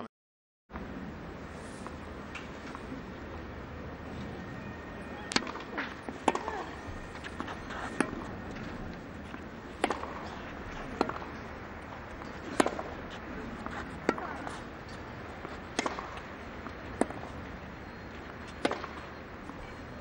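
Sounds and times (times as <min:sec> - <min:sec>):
tennis ball bouncing: 0:05.3 - 0:17.4, 0:18.2 - 0:19.2
tennis racket hitting ball: 0:05.4 - 0:08.2, 0:09.7 - 0:11.4, 0:12.2 - 0:16.3, 0:18.6 - 0:19.0.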